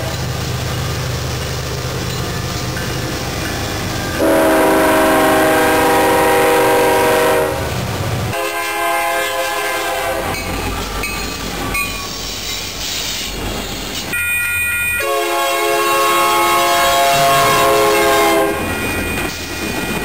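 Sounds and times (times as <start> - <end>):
freight train rumbling past: 0.0 - 20.0
locomotive air horn: 4.2 - 7.7, 8.3 - 10.4, 15.0 - 18.7.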